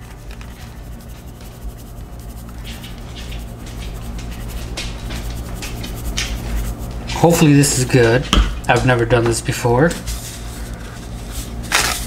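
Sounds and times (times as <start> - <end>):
spice shaker shaking powder: 0.0 - 8.2
steady low hum: 0.0 - 12.0.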